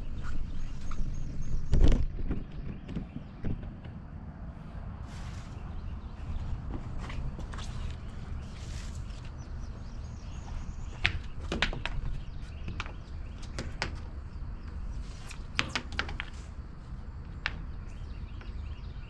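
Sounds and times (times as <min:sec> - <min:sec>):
steady low rumble: 0:00.0 - 0:11.4
footsteps on wooden deck: 0:04.7 - 0:15.0.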